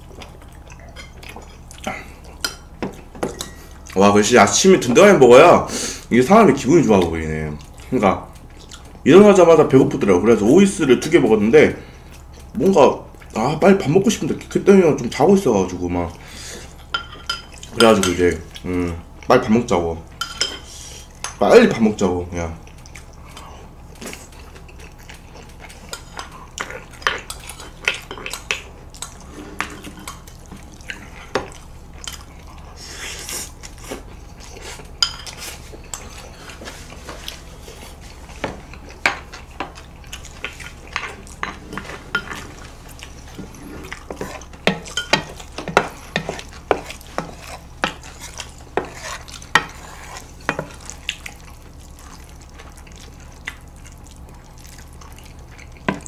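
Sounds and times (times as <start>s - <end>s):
noodles being stirred: 32.8s - 54.1s.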